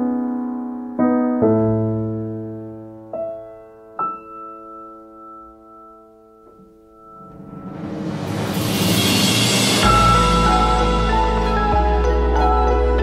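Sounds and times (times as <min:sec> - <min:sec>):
soft solo piano: 0:00.0 - 0:07.5.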